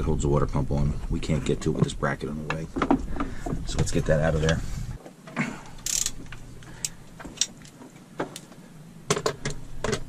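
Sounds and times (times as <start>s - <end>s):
metallic clicks of hand tools: 5.8s - 7.8s.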